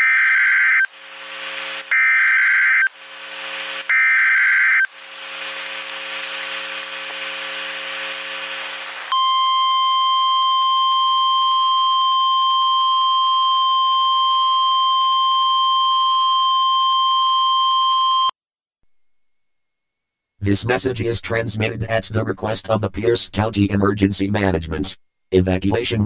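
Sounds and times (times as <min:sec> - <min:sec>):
harsh buzzing noise: 0:00.0 - 0:11.2
emergency alert beep: 0:01.9 - 0:02.9, 0:03.9 - 0:04.9, 0:09.1 - 0:18.3.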